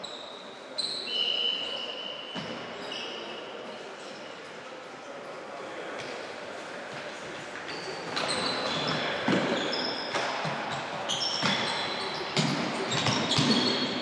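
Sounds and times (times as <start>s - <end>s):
sneakers squeaking on floor: 0.0s - 4.3s, 7.6s - 14.0s.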